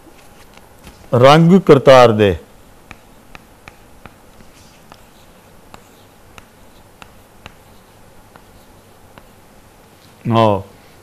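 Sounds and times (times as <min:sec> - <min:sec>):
chalk tapping on blackboard: 0:02.8 - 0:09.5.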